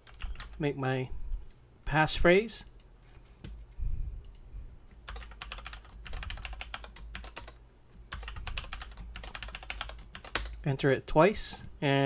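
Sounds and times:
typing on computer keyboard: 0:00.0 - 0:00.6, 0:05.1 - 0:10.6.

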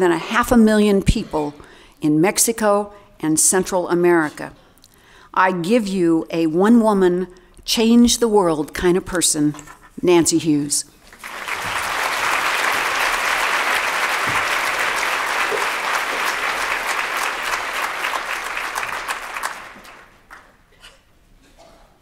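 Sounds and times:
audience applauding: 0:11.1 - 0:20.6.

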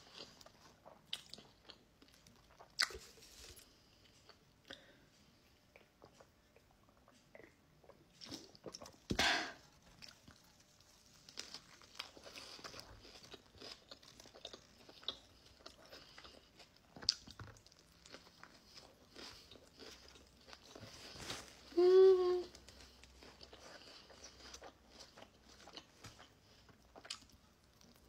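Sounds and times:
chewing and biting sandwich: 0:00.0 - 0:04.6, 0:09.7 - 0:21.7, 0:22.5 - 0:28.0.

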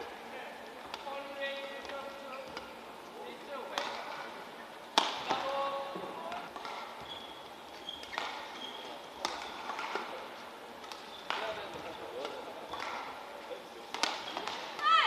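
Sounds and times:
racket hitting shuttlecock: 0:03.7 - 0:04.2, 0:04.9 - 0:05.6, 0:06.3 - 0:07.0, 0:08.0 - 0:08.6, 0:09.2 - 0:10.1, 0:10.8 - 0:13.3, 0:13.9 - 0:15.0
short high squeaks: 0:07.0 - 0:09.0.

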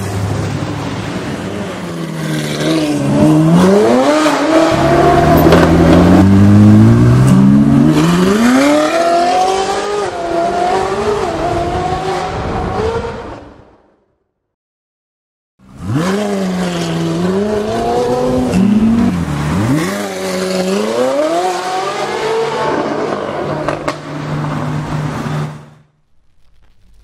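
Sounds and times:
sports car engine revving: 0:02.6 - 0:10.0.

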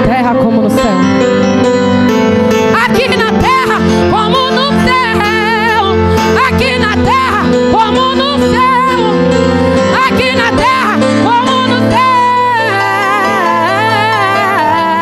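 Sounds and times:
woman singing with vibrato: 0:02.7 - 0:15.0.

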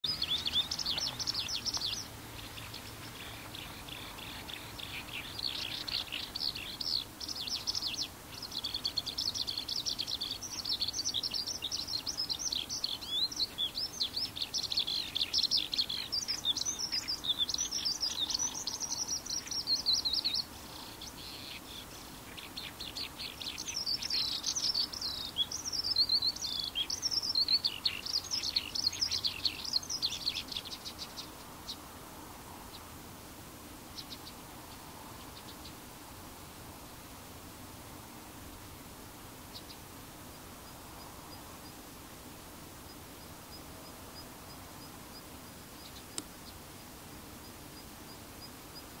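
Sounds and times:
skylark singing warbling trills: 0:00.0 - 0:31.8.

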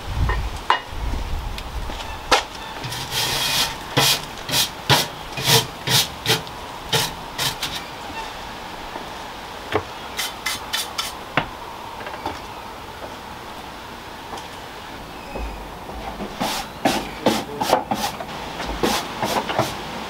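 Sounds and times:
garden trowel scraping: 0:02.3 - 0:08.4, 0:10.1 - 0:11.2, 0:15.9 - 0:19.9
light scrapes or knocks: 0:02.8 - 0:07.9.

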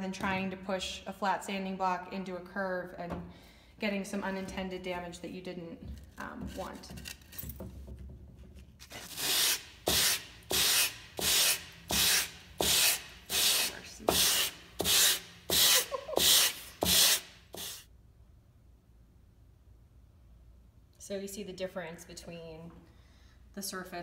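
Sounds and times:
sandpaper scratching on foam: 0:08.9 - 0:17.9.

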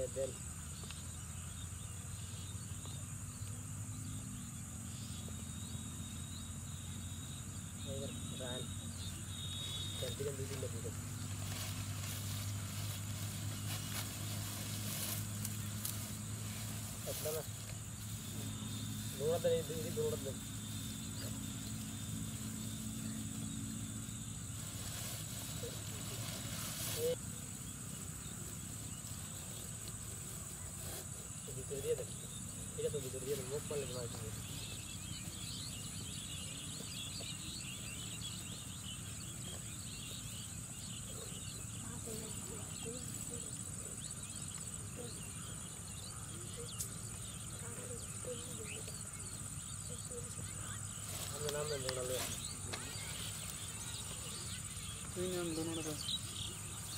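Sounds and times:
insects trilling: 0:00.0 - 0:56.9
small birds chirping: 0:00.0 - 0:56.9.

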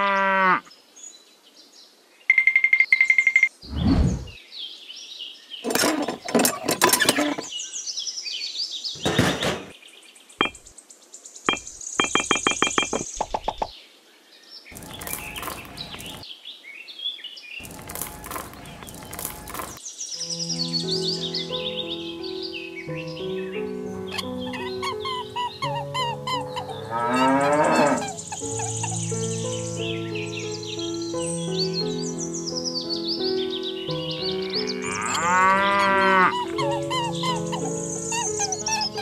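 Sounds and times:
rattling clicks: 0:05.7 - 0:07.5.

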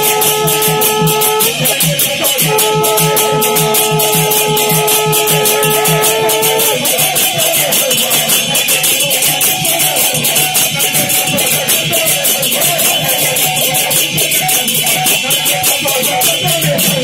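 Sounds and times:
long held note: 0:00.0 - 0:07.3
hand cymbals struck rhythmically: 0:00.0 - 0:17.0
pitched stage music: 0:00.0 - 0:17.0.

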